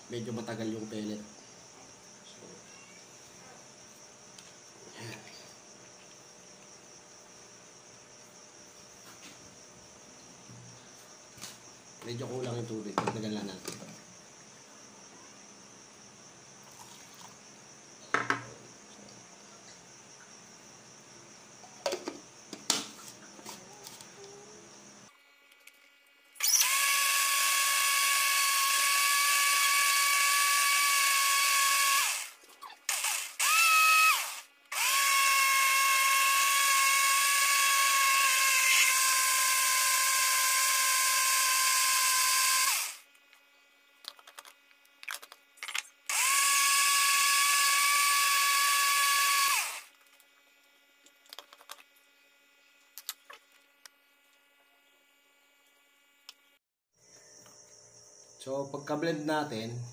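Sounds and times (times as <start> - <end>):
blender motor whining: 26.4 - 43.1, 46.1 - 49.9.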